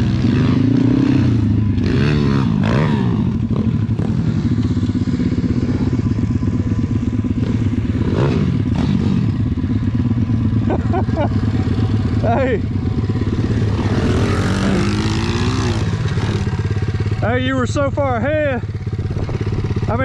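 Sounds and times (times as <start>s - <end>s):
pitbike engine revving: 0.0s - 20.0s.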